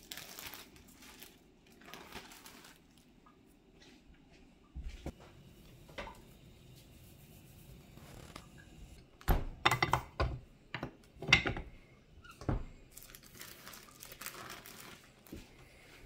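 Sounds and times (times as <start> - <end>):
plastic sheet rustling: 0.0 - 3.1, 12.9 - 15.9.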